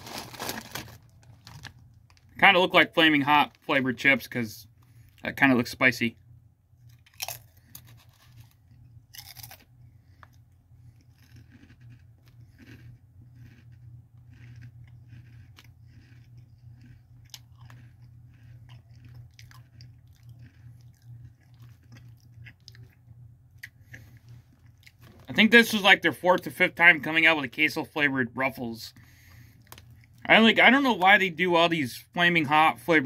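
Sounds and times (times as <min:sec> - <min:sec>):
person chewing potato chips: 0:00.0 - 0:03.6, 0:06.8 - 0:25.8, 0:28.9 - 0:30.8.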